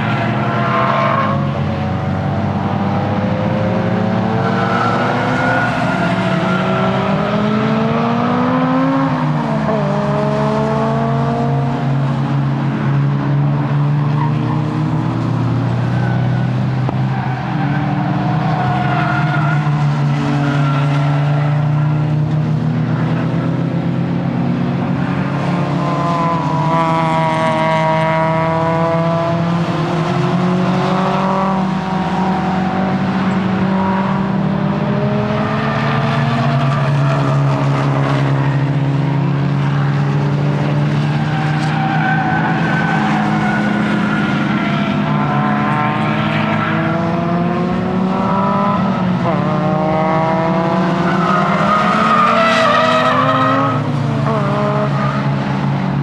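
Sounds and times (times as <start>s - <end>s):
car engine revving: 0.0s - 56.0s.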